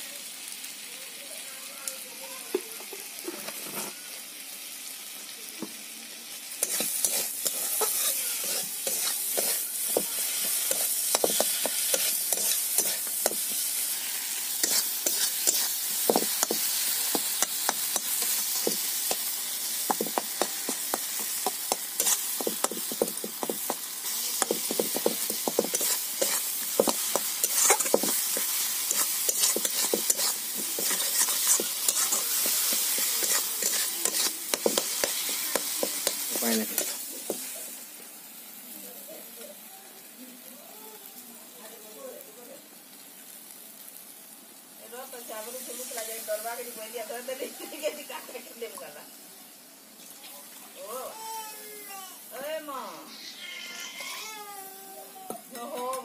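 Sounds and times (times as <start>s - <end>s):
vegetables sizzling in oil: 0.0s - 56.0s
metal spatula scraping pan: 6.6s - 13.4s, 14.5s - 19.3s, 19.9s - 23.8s, 24.4s - 37.5s, 53.1s - 54.2s.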